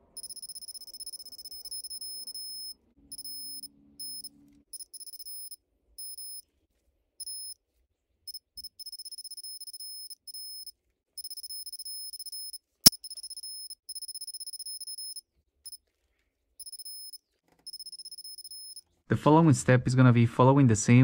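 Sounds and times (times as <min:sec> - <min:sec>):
torque wrench beeping: 0:00.0 - 0:06.4, 0:07.2 - 0:07.6, 0:08.3 - 0:15.8, 0:16.6 - 0:18.8.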